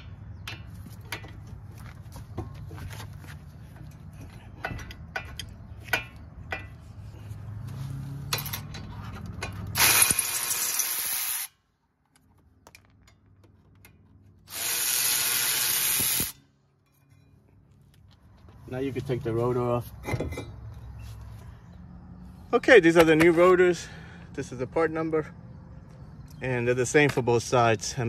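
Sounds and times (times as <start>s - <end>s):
electric ratchet spinning: 9.8s - 11.5s, 14.5s - 16.4s.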